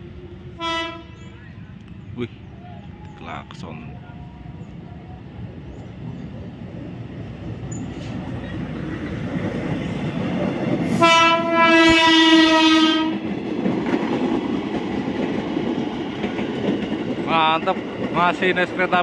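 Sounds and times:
train rumbling on rails: 0:00.0 - 0:19.0
train horn blast: 0:00.5 - 0:01.4, 0:10.9 - 0:13.3.

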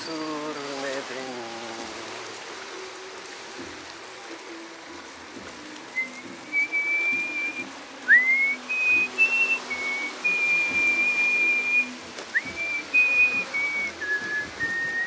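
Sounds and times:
whistled melody: 0:05.9 - 0:15.0.

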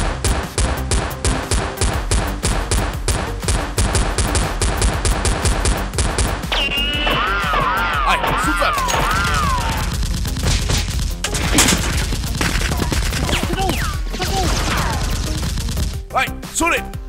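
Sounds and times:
action background music: 0:00.0 - 0:17.0
gunfire volleys: 0:08.8 - 0:16.0.

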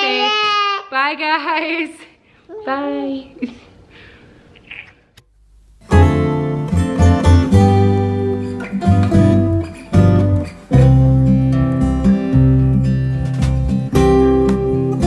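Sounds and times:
strummed acoustic guitar music: 0:05.8 - 0:15.0.

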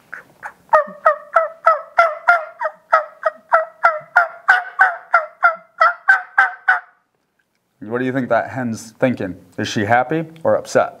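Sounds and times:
turkey call yelps: 0:00.1 - 0:07.0.

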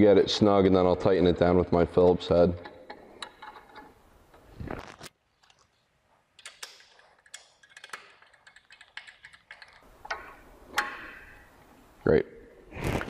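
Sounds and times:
small metallic screw clicks: 0:06.4 - 0:11.2.

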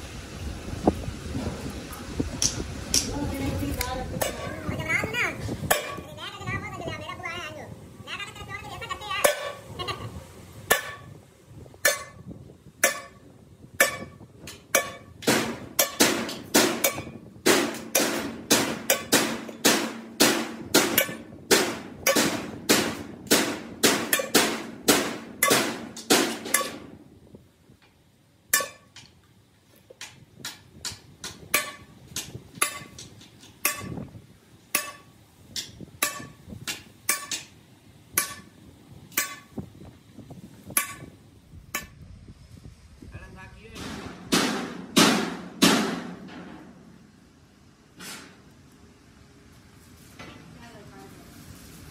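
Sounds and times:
hammer striking metal: 0:05.7 - 0:06.0, 0:09.2 - 0:09.6, 0:10.7 - 0:11.1, 0:11.8 - 0:27.0, 0:28.5 - 0:29.1, 0:30.0 - 0:34.1, 0:34.7 - 0:37.5, 0:38.1 - 0:38.5, 0:39.1 - 0:39.5, 0:40.7 - 0:41.2, 0:43.8 - 0:46.7.

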